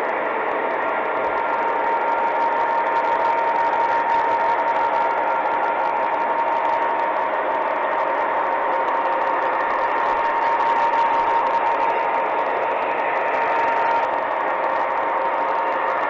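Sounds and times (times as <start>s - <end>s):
model train whirring and whining: 0.0s - 16.0s.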